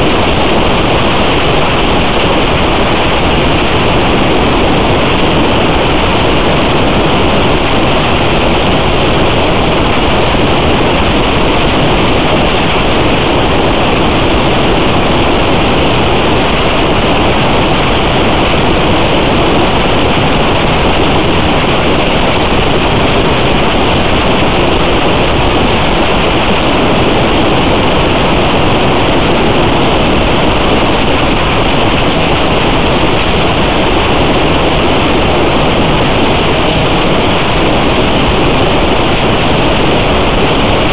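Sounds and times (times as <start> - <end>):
loud static hiss: 0.0 - 40.9.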